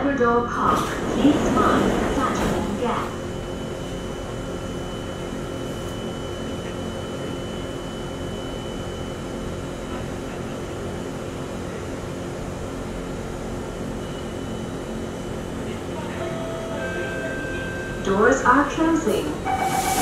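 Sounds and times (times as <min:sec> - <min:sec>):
train air conditioning hum: 0:00.0 - 0:20.0
thin high tone: 0:19.4 - 0:20.0.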